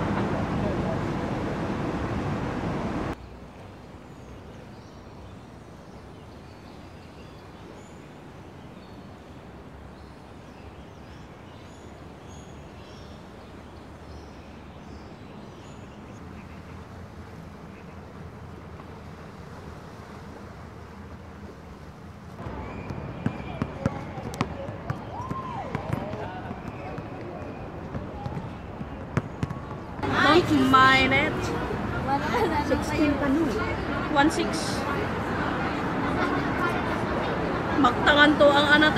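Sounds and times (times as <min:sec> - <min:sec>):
rush of noise: 0:00.0 - 0:03.2.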